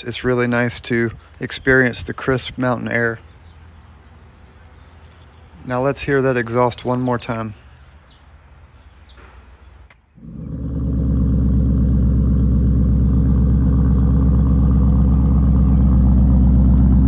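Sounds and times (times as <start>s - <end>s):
car engine starting and idling: 10.2s - 17.0s.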